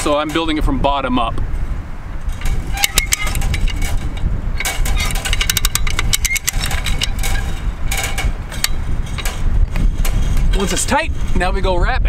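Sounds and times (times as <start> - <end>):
wind rumble on microphone: 0.0 - 12.0
metallic ratchet clicks: 2.4 - 10.2.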